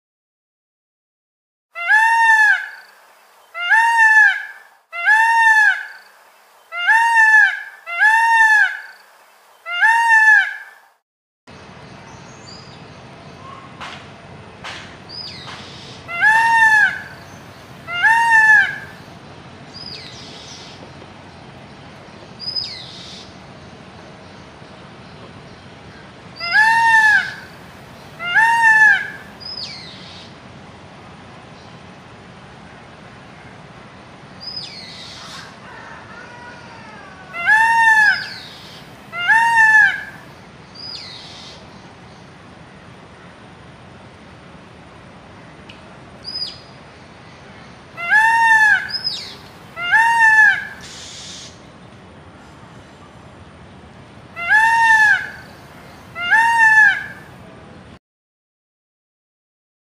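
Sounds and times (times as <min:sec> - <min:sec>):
peacock calling: 0:01.8 - 0:02.9, 0:03.5 - 0:06.0, 0:06.7 - 0:09.0, 0:09.6 - 0:10.9, 0:15.2 - 0:19.1, 0:26.4 - 0:30.3, 0:34.4 - 0:41.6, 0:47.9 - 0:51.6, 0:54.4 - 0:57.4
peafowl crying: 0:01.8 - 0:02.9, 0:03.6 - 0:06.0, 0:06.7 - 0:09.0, 0:09.6 - 0:10.8, 0:15.8 - 0:17.3, 0:17.9 - 0:19.0, 0:26.4 - 0:27.6, 0:28.2 - 0:29.8, 0:34.8 - 0:40.3, 0:48.0 - 0:51.6, 0:54.4 - 0:57.3
outdoor background hiss: 0:01.8 - 0:58.0
high bird calls: 0:47.9 - 0:51.6.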